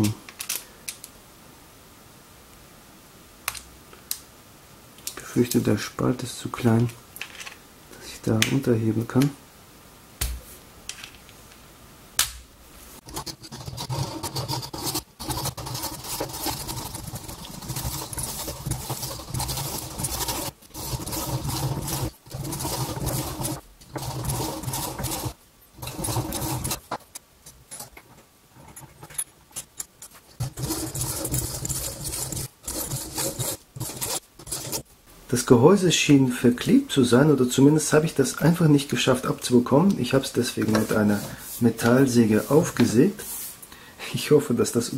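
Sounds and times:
hand saw cutting metal: 0:13.1 - 0:26.8, 0:30.4 - 0:34.8.

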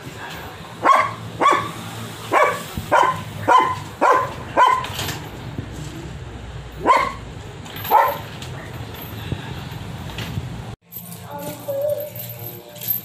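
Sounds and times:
dog barking: 0:00.8 - 0:05.0, 0:06.8 - 0:07.2, 0:07.9 - 0:08.3.

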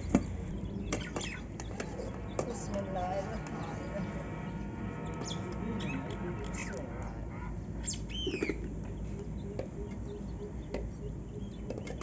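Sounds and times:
steady low background: 0:00.0 - 0:07.9
bird chirping: 0:00.0 - 0:12.0.

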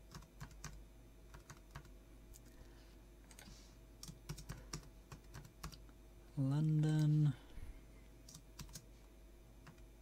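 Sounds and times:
typing on computer keyboard: 0:00.0 - 0:02.5, 0:04.0 - 0:05.8, 0:08.3 - 0:08.8.

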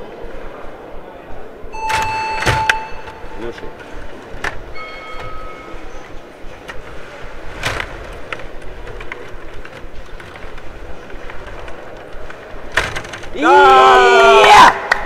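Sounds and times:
game rods rattling and clicking: 0:06.4 - 0:13.4.

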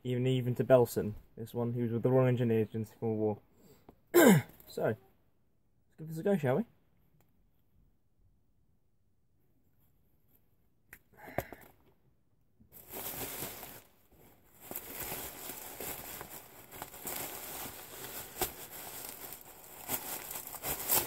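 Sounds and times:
plastic bag rustling and tearing: 0:12.7 - 0:21.0.

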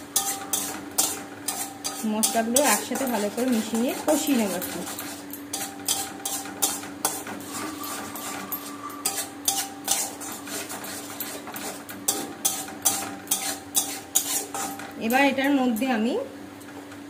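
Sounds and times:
steady low hum: 0:00.0 - 0:16.5
metal spatula scraping a pan: 0:00.2 - 0:14.9.

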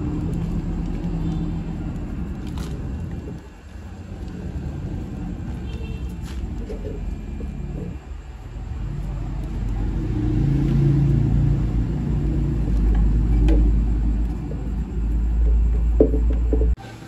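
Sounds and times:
bending machine low rumble: 0:00.0 - 0:17.0
hum: 0:00.0 - 0:17.0.

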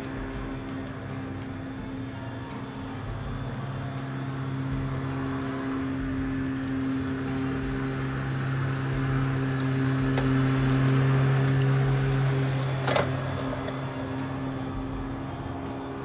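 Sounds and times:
electric lawn mower humming: 0:00.0 - 0:16.0.

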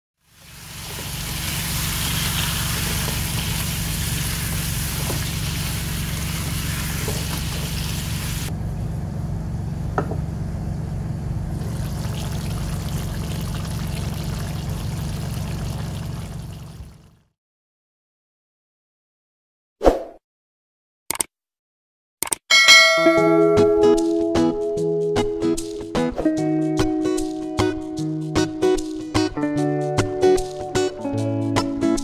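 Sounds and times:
vegetables sizzling in a wok: 0:00.2 - 0:08.5
stew bubbling: 0:11.6 - 0:17.1.

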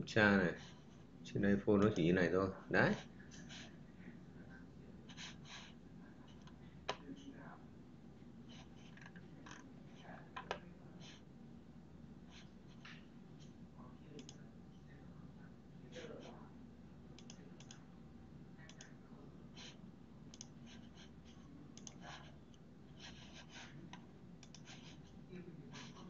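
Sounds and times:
low steady hum: 0:00.0 - 0:26.0
mouse and keyboard clicks: 0:21.8 - 0:22.0, 0:24.4 - 0:24.9.

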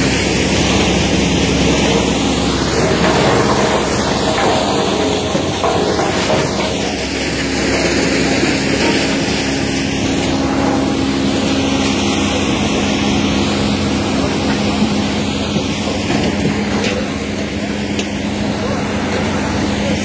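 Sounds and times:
firewood processor mechanical drone: 0:00.0 - 0:20.0.

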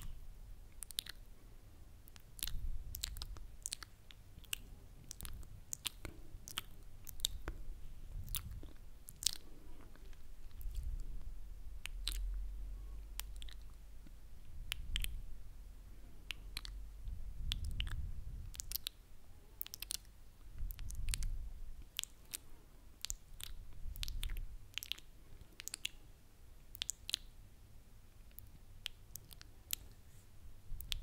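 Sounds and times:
tongue clicks: 0:00.0 - 0:01.3, 0:02.0 - 0:07.6, 0:08.2 - 0:11.2, 0:11.8 - 0:12.4, 0:13.0 - 0:15.3, 0:16.2 - 0:16.8, 0:17.4 - 0:19.0, 0:19.6 - 0:26.0, 0:26.7 - 0:27.4, 0:28.2 - 0:30.0, 0:30.8 - 0:31.0
wet lip-smacks and kisses: 0:00.8 - 0:01.2, 0:02.0 - 0:07.6, 0:08.2 - 0:11.0, 0:13.1 - 0:15.2, 0:16.2 - 0:16.8, 0:17.5 - 0:19.0, 0:19.6 - 0:20.1, 0:20.7 - 0:22.4, 0:23.0 - 0:26.0, 0:26.7 - 0:27.3, 0:28.3 - 0:30.0, 0:30.8 - 0:31.0.

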